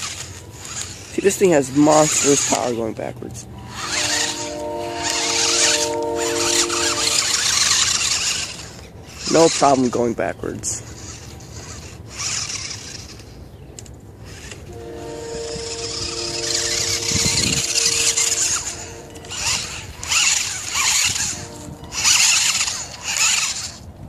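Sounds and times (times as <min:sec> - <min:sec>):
electric motors whining: 0:00.0 - 0:24.0.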